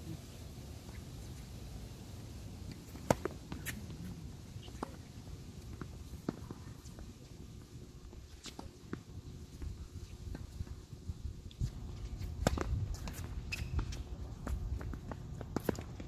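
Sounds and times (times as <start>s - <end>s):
tennis ball bouncing on hard court: 2.8s - 4.0s, 12.2s - 16.0s.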